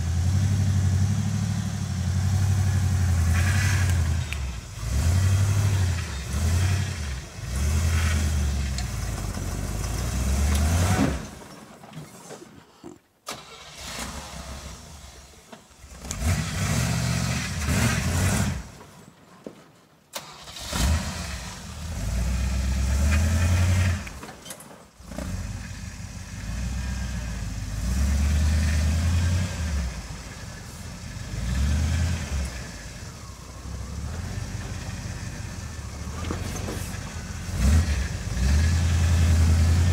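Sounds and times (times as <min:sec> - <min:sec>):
engine revving in bursts: 0:00.0 - 0:11.2, 0:15.9 - 0:18.7, 0:25.0 - 0:36.2, 0:36.9 - 0:39.9.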